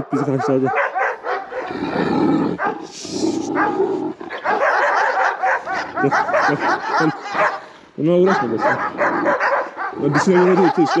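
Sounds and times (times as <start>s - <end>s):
dogs barking: 0.0s - 11.0s.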